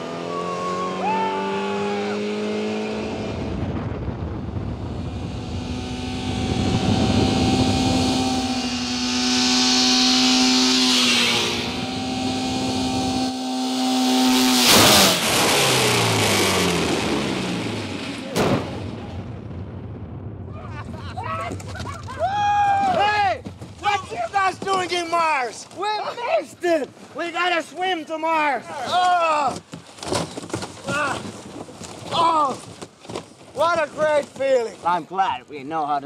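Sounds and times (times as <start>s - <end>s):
car engine accelerating: 0.0s - 18.4s.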